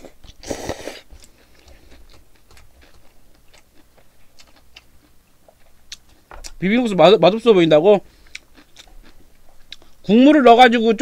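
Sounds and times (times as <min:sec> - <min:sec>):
slurping noodles: 0:00.0 - 0:01.1
faint chewing: 0:00.0 - 0:06.6, 0:07.6 - 0:10.1.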